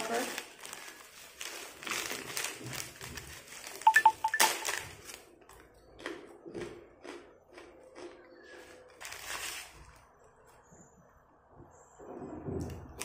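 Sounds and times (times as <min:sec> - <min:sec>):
plastic snack bag crinkling: 0:00.0 - 0:05.7, 0:08.9 - 0:10.0
high electronic beeps: 0:03.9 - 0:04.7.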